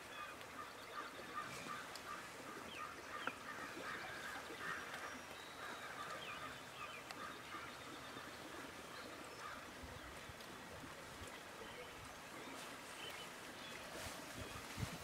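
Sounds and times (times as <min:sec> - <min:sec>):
distant large birds calling: 0:00.0 - 0:10.3
songbirds chirping: 0:00.0 - 0:15.0.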